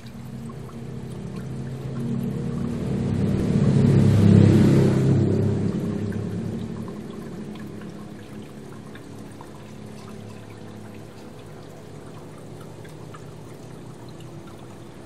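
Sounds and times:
filter motor hum: 0.0s - 15.0s
water pouring and splashing: 0.0s - 15.0s.

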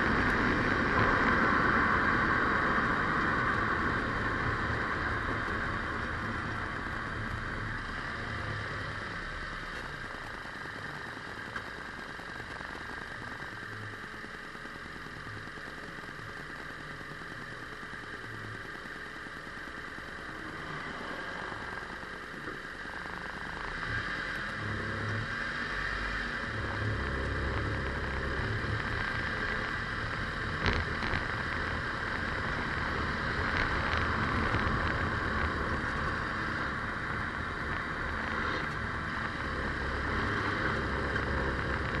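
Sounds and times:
vehicle road and engine noise: 0.0s - 42.0s
low rumble: 19.8s - 42.0s.

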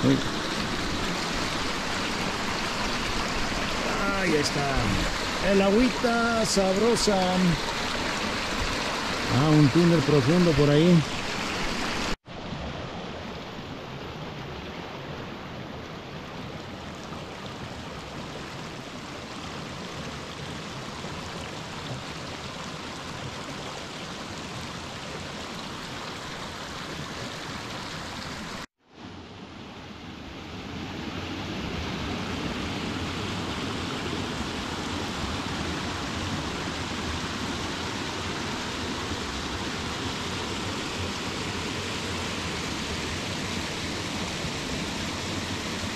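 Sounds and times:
stream water rushing: 0.0s - 45.9s.

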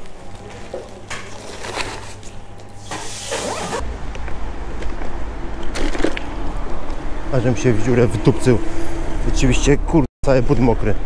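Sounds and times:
plastic bag rustling: 1.3s - 2.5s
bag closing rasp: 3.0s - 3.8s.

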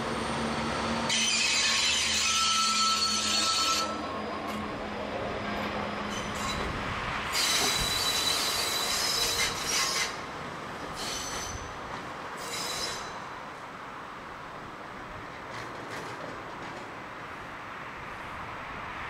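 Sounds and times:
train wheels squealing on rails: 0.0s - 13.4s.

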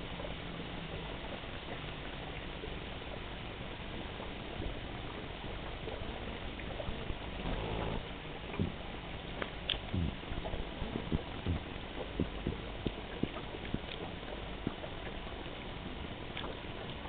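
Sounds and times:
low hum: 0.0s - 17.0s
water hissing: 6.8s - 8.8s.

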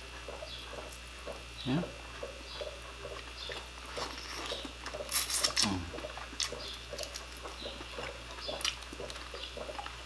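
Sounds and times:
wet chewing and lip-smacking: 2.1s - 10.0s.

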